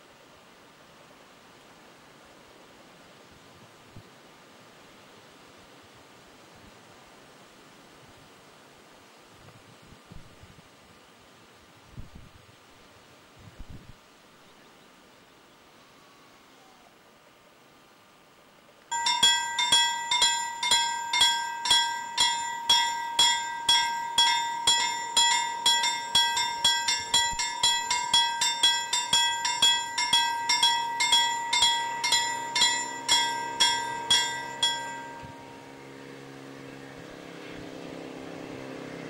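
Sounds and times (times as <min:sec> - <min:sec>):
level crossing warning bell: 0:18.9 - 0:36.4
low engine drone: 0:18.9 - 0:39.0.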